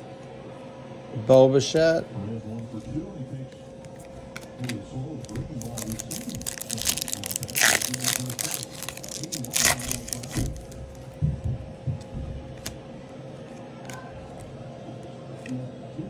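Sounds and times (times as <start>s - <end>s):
cards being handled: 3.8s - 11.0s, 12.0s - 12.8s
foil wrapper tearing and crinkling: 4.4s - 10.8s.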